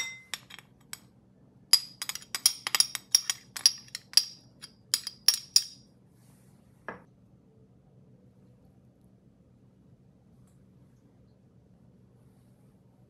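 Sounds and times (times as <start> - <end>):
spoon clinking on ceramic bowl: 0.0 - 1.0, 1.8 - 5.8.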